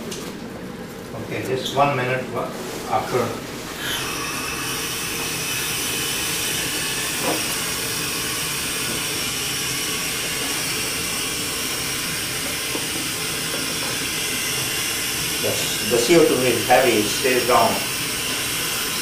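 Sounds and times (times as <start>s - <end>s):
gas hissing from hose: 3.8s - 19.0s.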